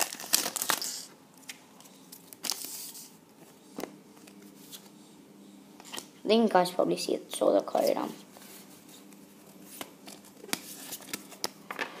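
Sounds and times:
plastic wrapper crinkling and tearing: 0.0s - 1.1s
faint crinkles and clicks of cards: 0.0s - 5.0s, 7.7s - 11.9s.

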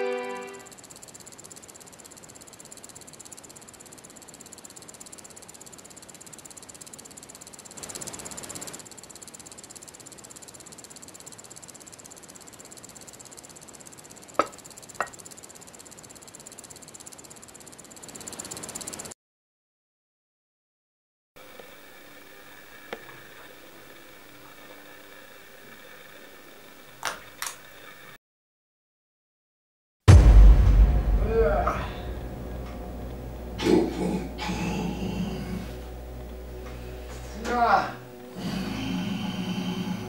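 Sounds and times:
high-pitched chirring: 0.0s - 19.1s.

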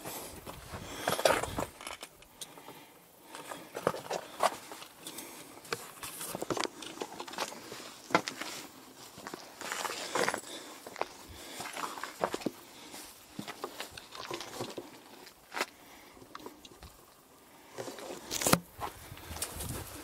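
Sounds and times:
footsteps on dirt and grass: 7.3s - 15.8s, 18.1s - 20.0s.

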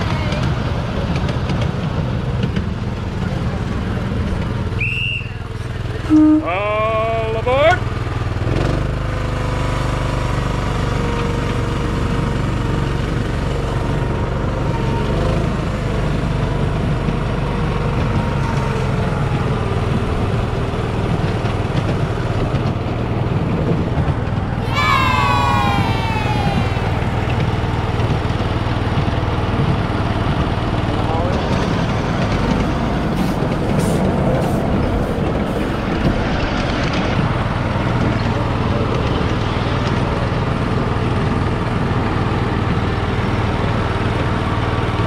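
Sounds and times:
miniature train rumbling on rails: 0.0s - 45.0s
rising cry: 24.6s - 28.3s.

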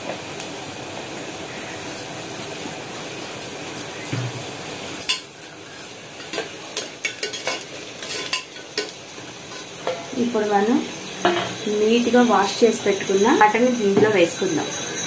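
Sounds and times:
onions sizzling in oil: 0.0s - 15.0s
ladle scraping and clinking pot: 6.2s - 10.1s.

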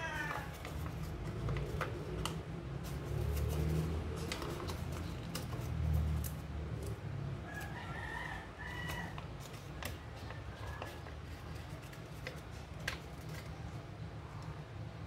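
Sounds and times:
paper crackles: 0.0s - 7.0s, 8.6s - 13.8s
paper being folded: 0.1s - 7.0s, 8.8s - 13.8s.

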